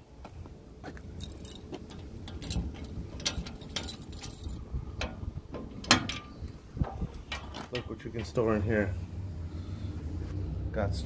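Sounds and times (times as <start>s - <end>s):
keys jangling: 1.0s - 4.6s
metal lock clicks: 5.0s - 7.9s.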